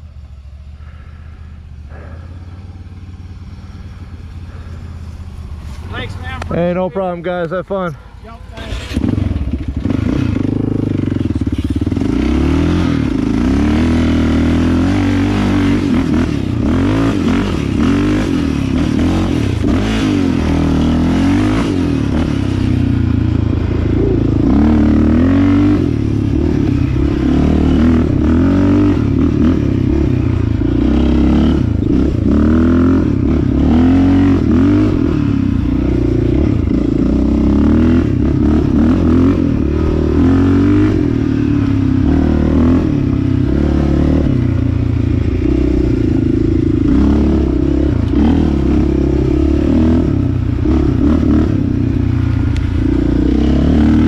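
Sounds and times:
quad engine revving: 6.4 - 54.0.

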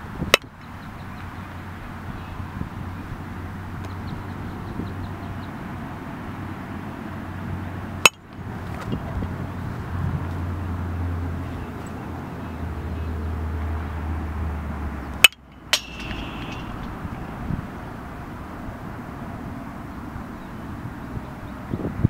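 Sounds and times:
low wind rumble: 0.0 - 22.0
bat striking baseball: 15.2 - 17.5
ringing knock: 15.3 - 17.4.

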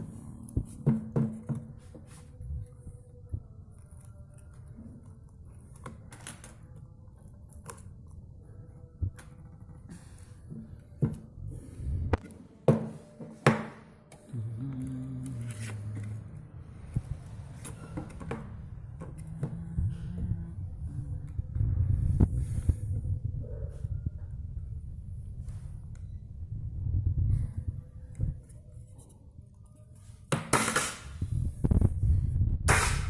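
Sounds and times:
steady low hum: 14.0 - 29.8.

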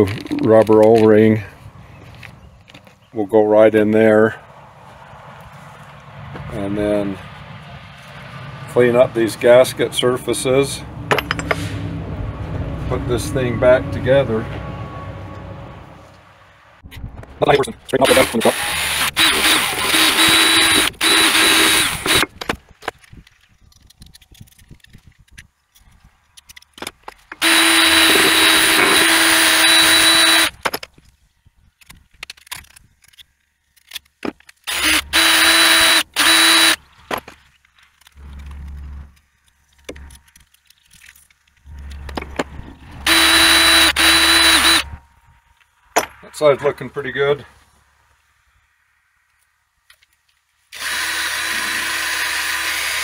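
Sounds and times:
handling clicks and scrapes: 0.0 - 3.1, 11.1 - 11.9, 16.8 - 46.2
drill with wire brush whining: 18.0 - 22.3, 27.4 - 30.6, 34.6 - 36.8, 43.0 - 45.0, 50.7 - 53.0.

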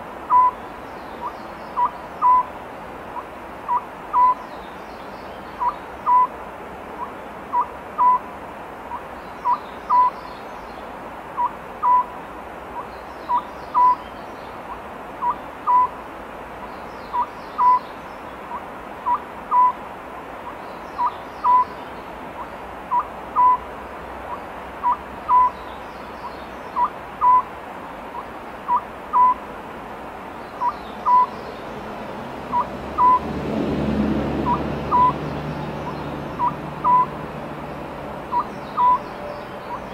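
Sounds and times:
owl calling: 0.3 - 0.6, 1.2 - 2.5, 3.2 - 4.4, 5.6 - 6.3, 7.0 - 8.2, 8.9 - 10.2, 11.4 - 12.1, 12.8 - 14.1, 14.7 - 16.0, 17.1 - 19.8, 20.5 - 21.8, 22.4 - 23.6, 24.3 - 25.6, 26.2 - 27.5, 28.1 - 29.4, 30.6 - 31.4, 32.5 - 33.2, 34.4 - 35.2, 35.8 - 37.1, 38.3 - 39.9.

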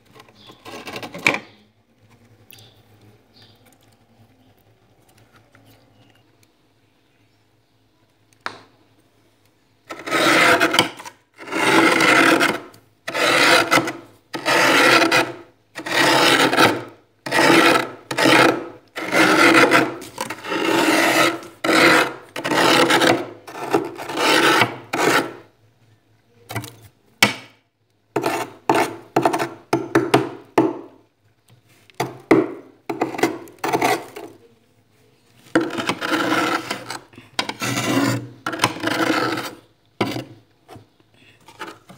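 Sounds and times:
metal spoon scraping frost: 0.3 - 1.3, 9.9 - 25.5, 28.2 - 29.7, 32.9 - 34.5, 35.4 - 40.4, 41.4 - 41.9.

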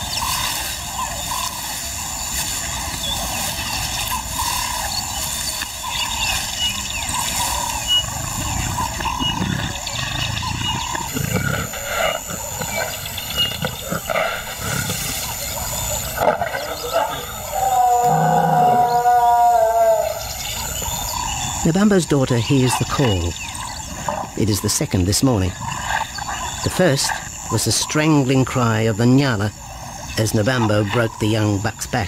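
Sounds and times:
paws scraping dry grass and earth: 0.0 - 21.6
lioness calling: 0.0 - 28.7.

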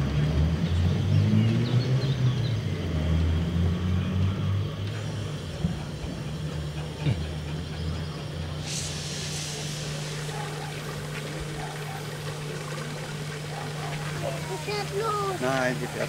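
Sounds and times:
steady low hum: 2.6 - 16.0
steam locomotive steam hiss: 5.0 - 12.6.

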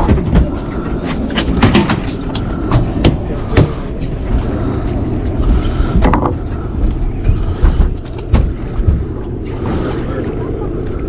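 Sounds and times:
boat engine idling: 0.0 - 11.0.

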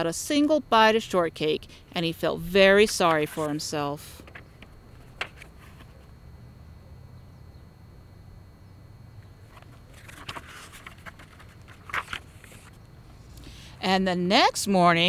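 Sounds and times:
faint low outdoor rumble: 0.0 - 15.0
book rustles and taps: 4.2 - 6.0, 9.5 - 12.8.

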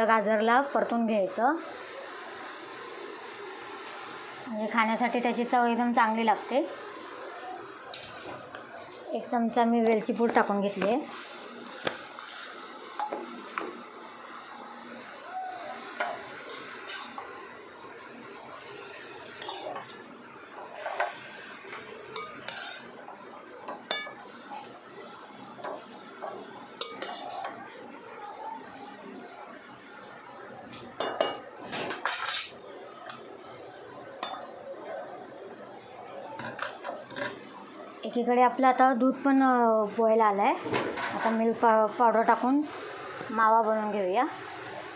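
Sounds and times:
carrots sizzling in a pan: 0.0 - 37.1, 41.2 - 44.9
spatula stirring: 15.5 - 17.5, 18.3 - 24.9, 25.6 - 27.7
metal spoon scraping a pan: 15.9 - 17.3, 19.3 - 19.9, 20.7 - 23.0, 26.8 - 27.5, 31.2 - 32.6.

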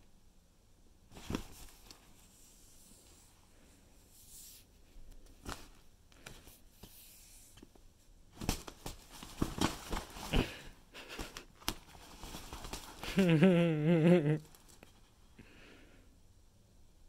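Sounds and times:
fabric tunnel rustling: 1.1 - 6.7, 8.3 - 13.5.

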